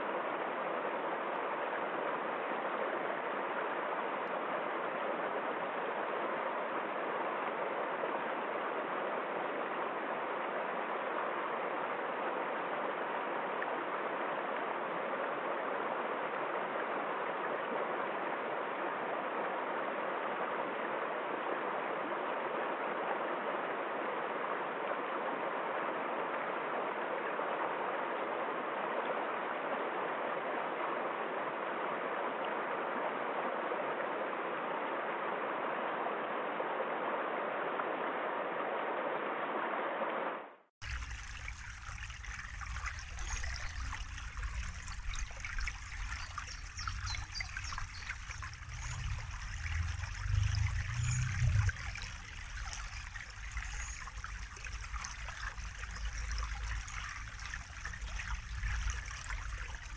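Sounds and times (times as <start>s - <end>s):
stream flowing over stones: 40.8s - 59.9s.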